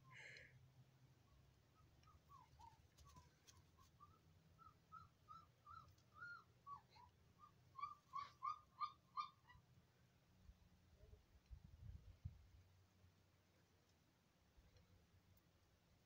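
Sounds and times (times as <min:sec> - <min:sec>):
puppy whimpering and yelping: 0:01.7 - 0:09.7.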